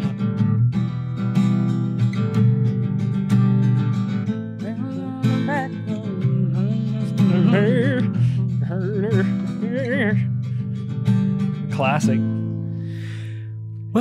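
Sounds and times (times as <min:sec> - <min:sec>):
acoustic guitar strumming: 0:00.0 - 0:14.0
person singing: 0:04.6 - 0:10.2.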